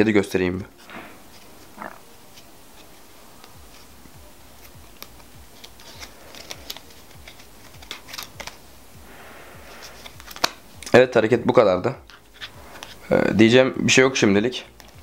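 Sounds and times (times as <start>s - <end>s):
playing cards clicking and snapping: 4.6s - 8.6s, 9.7s - 11.0s, 12.0s - 13.0s, 14.6s - 15.0s.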